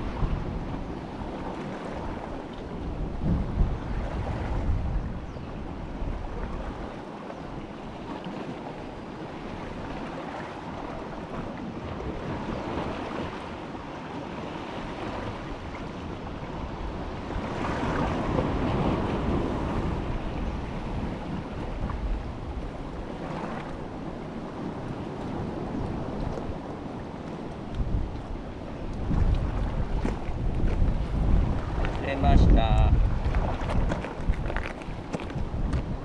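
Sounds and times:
sea surf: 0:00.0 - 0:36.0
wind buffeting microphone: 0:00.0 - 0:36.0.

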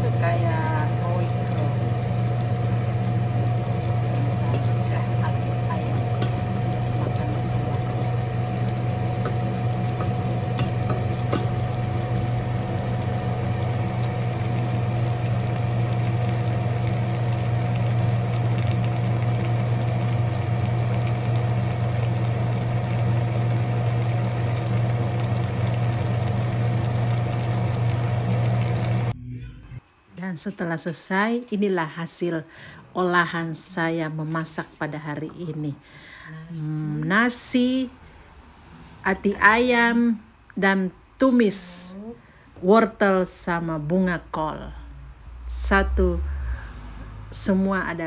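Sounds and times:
stew simmering in a pot: 0:00.0 - 0:29.1
low hum with high tone: 0:00.0 - 0:35.5, 0:43.0 - 0:48.0
wooden spoon stirring: 0:02.4 - 0:14.8.

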